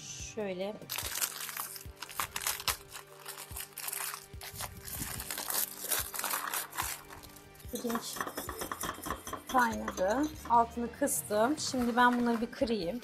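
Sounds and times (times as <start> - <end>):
biscuit wrapper crinkling: 0.9 - 7.7.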